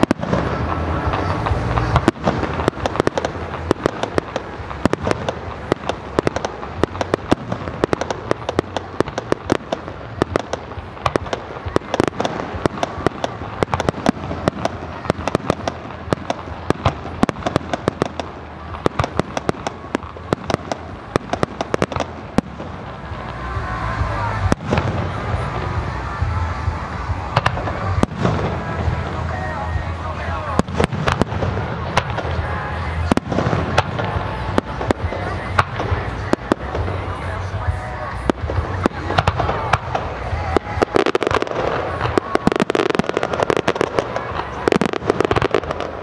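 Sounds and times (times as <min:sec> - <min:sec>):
deep fireworks booms: 0:00.0 - 0:46.0
fireworks crackling and popping: 0:00.0 - 0:46.0.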